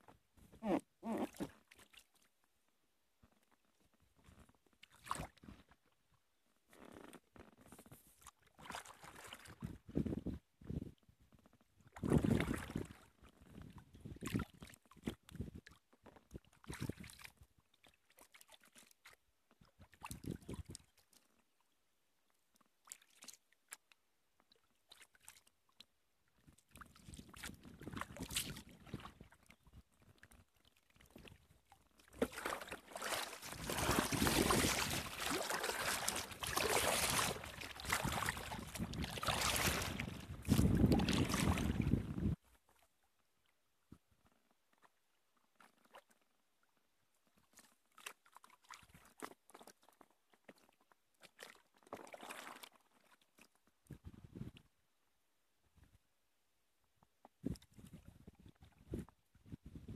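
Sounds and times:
water sloshing around boat: 4.2 - 5.8, 7.7 - 10.0, 26.4 - 42.9, 47.4 - 53.6
paddle splashes: 8.2 - 9.7, 26.7 - 42.9, 50.6 - 53.5.

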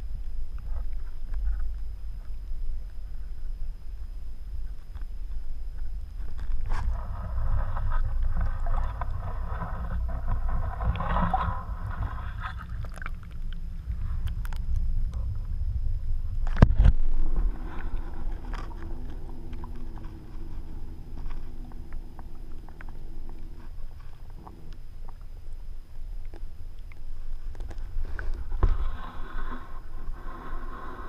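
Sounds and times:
muffled underwater rumble: 0.0 - 31.0
hiss: 28.6 - 31.0.

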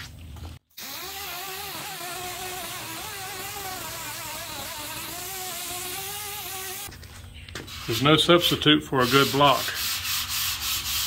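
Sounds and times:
orbital sander whine: 0.8 - 6.9.

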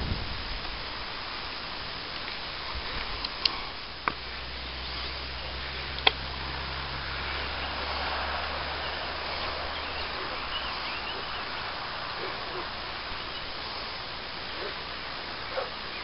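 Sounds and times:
low drone: 0.0 - 16.0
rustling vegetation: 0.0 - 16.0
wind: 0.0 - 16.0
sharp clicks: 5.9 - 6.2.

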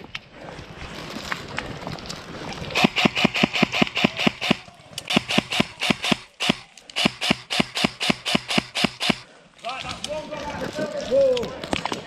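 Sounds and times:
airsoft rifle bursts: 2.8 - 9.3.

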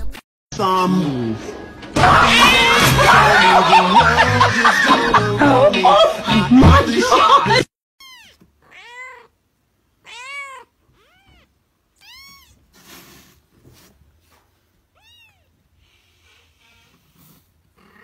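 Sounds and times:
kitten mewing: 8.0 - 9.4, 10.0 - 13.0.

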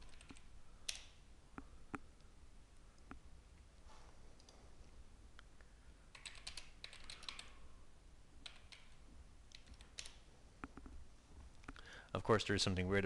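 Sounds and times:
faint keyboard typing: 0.0 - 2.3, 6.1 - 7.7, 8.4 - 11.9.

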